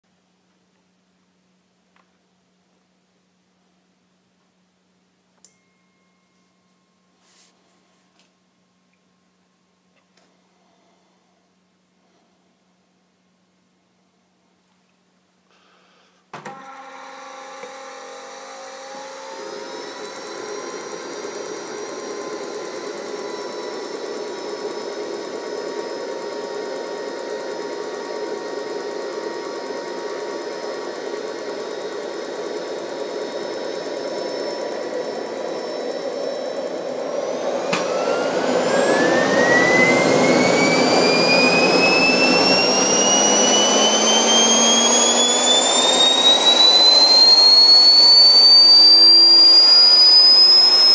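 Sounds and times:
click: 5.4s - 5.6s
turbojet engine whine: 16.5s - 50.9s.

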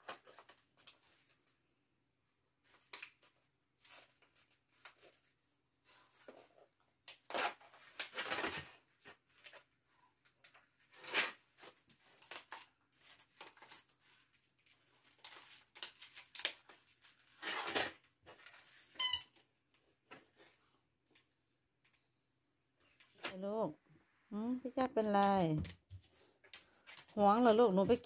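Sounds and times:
plastic bottle crunching: 15.0s - 18.6s.

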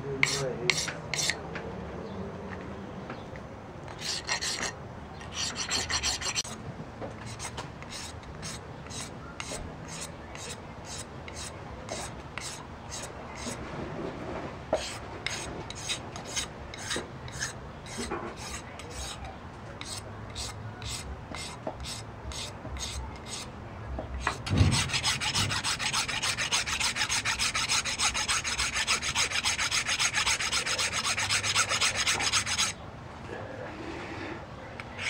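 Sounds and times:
hand file rasping on stone: 0.2s - 1.4s, 3.9s - 6.6s, 7.3s - 13.6s, 14.8s - 19.2s, 19.8s - 23.5s, 24.2s - 32.8s.

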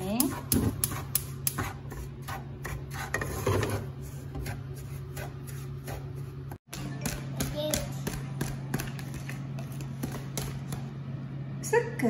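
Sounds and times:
steady low hum: 0.0s - 12.0s
wooden spatula scraping pan: 1.6s - 6.3s.

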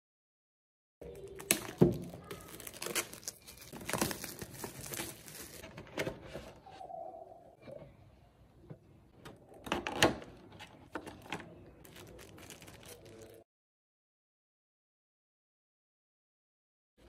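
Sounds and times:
plastic wrap crinkling and tearing: 1.0s - 5.7s, 11.0s - 13.4s.

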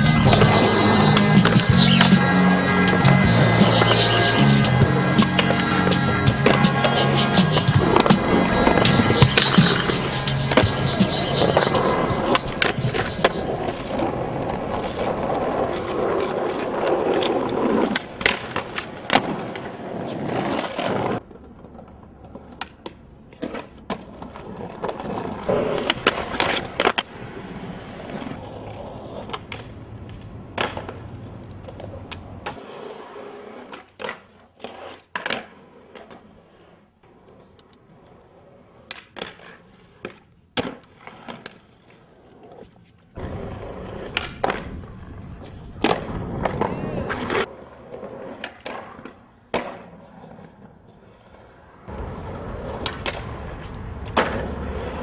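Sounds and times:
skateboard wheels rolling on concrete: 0.0s - 55.0s
skateboard pops and landings: 4.8s - 27.2s, 28.0s - 32.8s, 33.6s - 36.2s, 38.8s - 41.6s, 43.2s - 50.6s, 51.9s - 55.0s.

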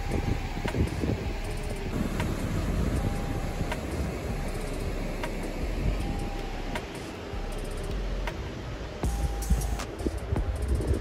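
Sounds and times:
wind on microphone: 0.0s - 6.9s, 8.0s - 11.0s.

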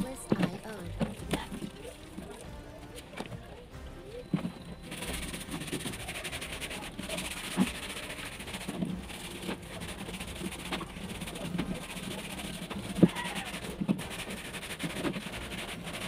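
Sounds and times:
tap water running onto plastic: 5.1s - 16.0s.

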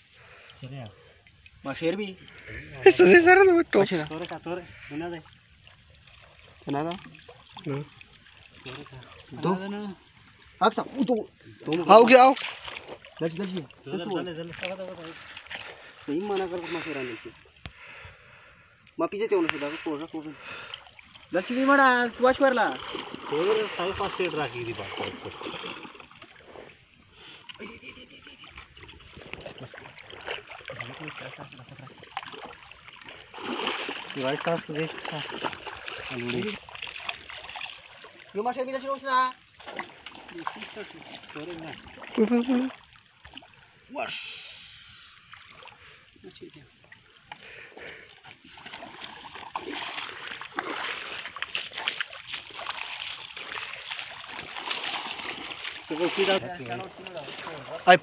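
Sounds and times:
river water sloshing and splashing: 0.0s - 58.0s
small splashes: 0.1s - 18.0s, 19.4s - 38.4s, 39.3s - 58.0s.

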